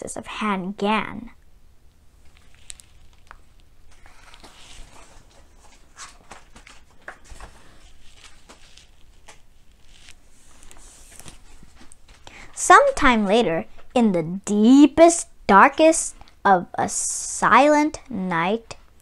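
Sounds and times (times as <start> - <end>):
paper page turning: 2.2 - 12.2
hand smoothing paper: 7.4 - 11.9.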